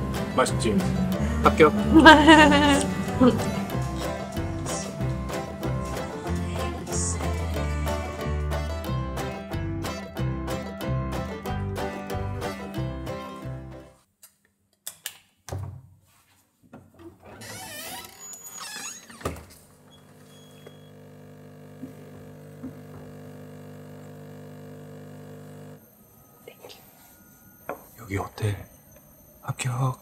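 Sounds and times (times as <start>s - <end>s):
background music: 0.0s - 14.0s
mechanical hum: 24.9s - 30.0s.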